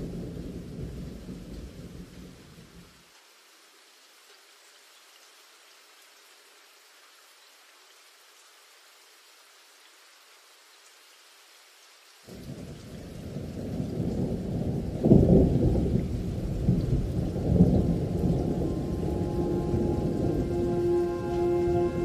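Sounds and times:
steady rain: 0.0 - 22.0
thunder rolling: 13.2 - 22.0.

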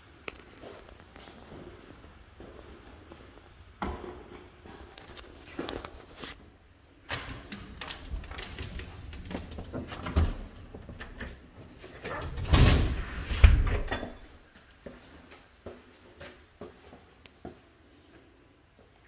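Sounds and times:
door clicks and knocks: 7.1 - 11.3.

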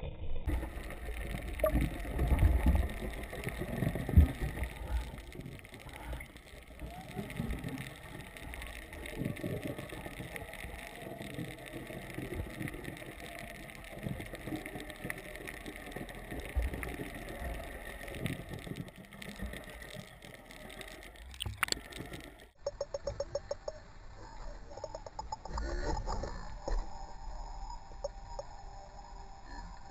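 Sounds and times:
muffled underwater rush: 0.0 - 29.9
sharp clicks: 0.5 - 23.8.

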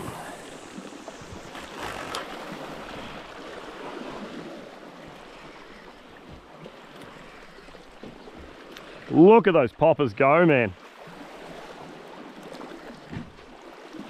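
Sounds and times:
wind on microphone: 0.0 - 3.4
sea washing against rocks: 0.0 - 14.0.

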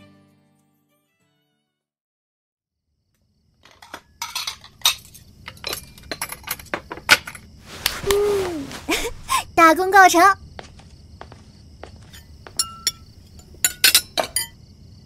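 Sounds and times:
dishes and utensils clinking: 3.6 - 7.4, 12.1 - 14.6.

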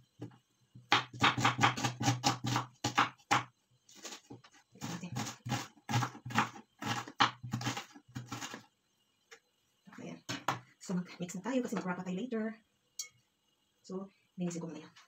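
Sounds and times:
knife chopping on wooden board: 0.9 - 3.5.

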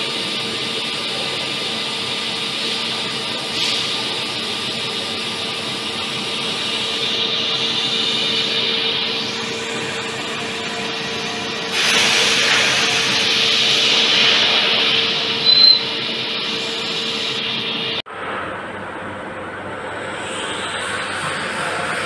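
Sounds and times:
machine hum with whine: 0.0 - 22.0
high squeal: 14.9 - 17.4.

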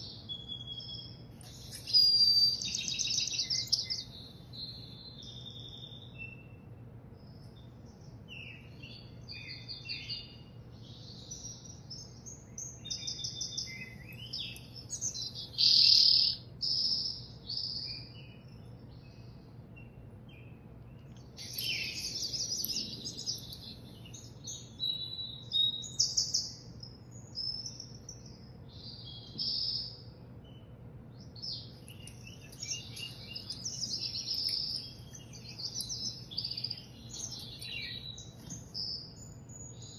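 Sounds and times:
songbird singing through speakers: 0.0 - 39.9.

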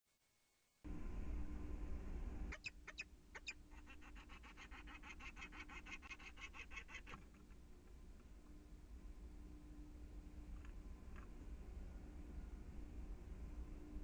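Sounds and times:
falcon kak-kak alarm calls: 2.5 - 7.2.

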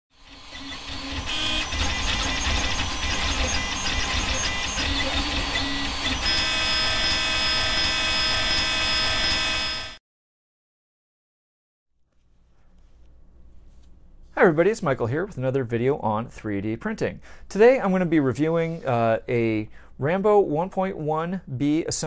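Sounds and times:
three d printer stepper motors whining: 0.2 - 10.0.

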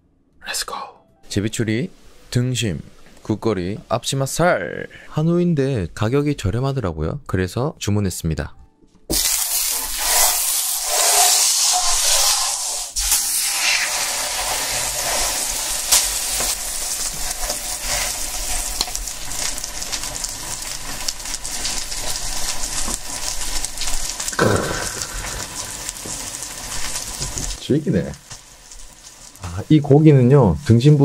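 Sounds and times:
steak sizzling on a griddle: 9.1 - 31.0.

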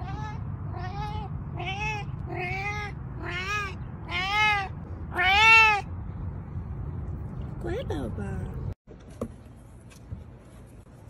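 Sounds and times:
cat meowing: 0.0 - 5.8.

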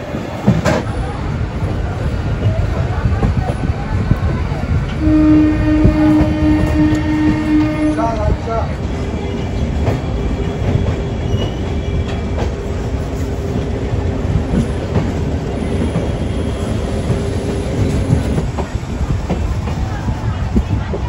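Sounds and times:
train wheels rumbling: 0.0 - 21.0.

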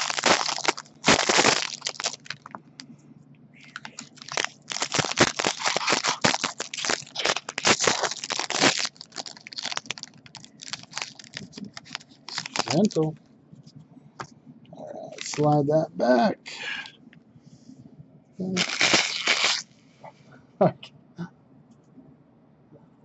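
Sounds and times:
foil wrapper crinkling and tearing: 0.0 - 2.6, 3.6 - 13.1, 15.1 - 15.6, 18.6 - 19.7.

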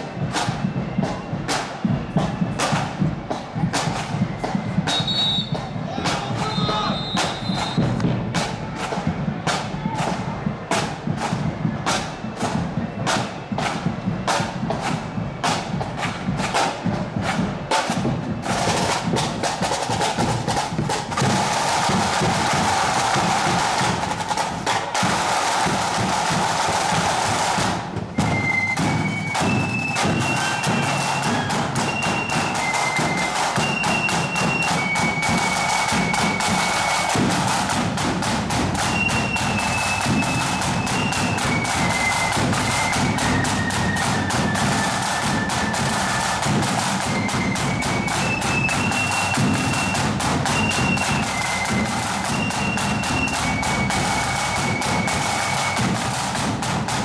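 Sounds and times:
snare drums beating: 0.0 - 57.0
accordions playing a march: 27.5 - 57.0.

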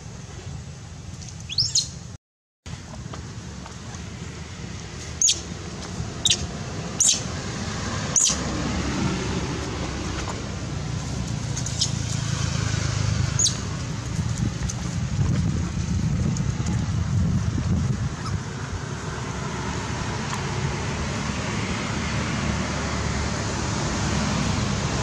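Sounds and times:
wind on microphone: 4.4 - 20.6.

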